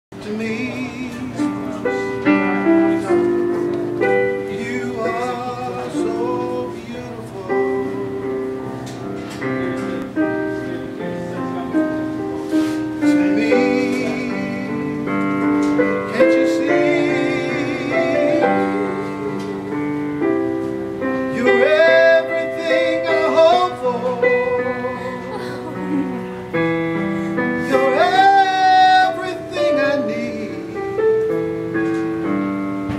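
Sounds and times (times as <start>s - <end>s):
musical accompaniment: 0.1s - 32.9s
person singing operatically: 21.3s - 26.2s, 27.6s - 30.8s.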